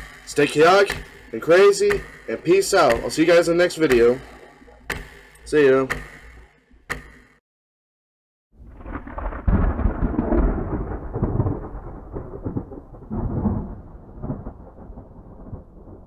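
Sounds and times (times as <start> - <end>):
rolling thunder rumble: 8.6 - 16.0.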